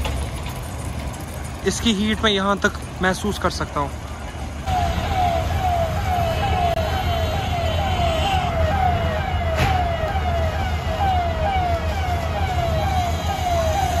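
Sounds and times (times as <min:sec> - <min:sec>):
fire engine siren wailing: 0:04.7 - 0:14.0.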